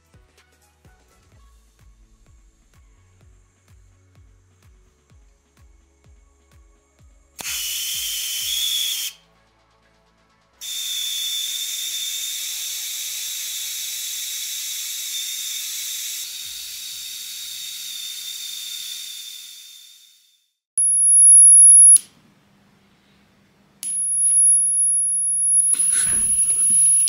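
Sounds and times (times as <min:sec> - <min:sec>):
plasma thruster hiss and whine: 0:25.4 - 0:27.0.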